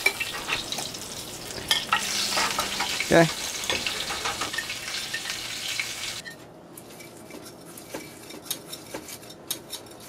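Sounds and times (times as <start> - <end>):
oil sizzling in a pan: 0.0 - 6.2
utensils clinking on pans: 0.0 - 10.0.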